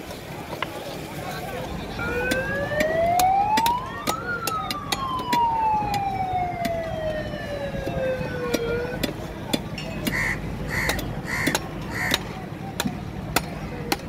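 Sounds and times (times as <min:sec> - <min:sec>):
siren winding up and down: 0:02.0 - 0:09.0.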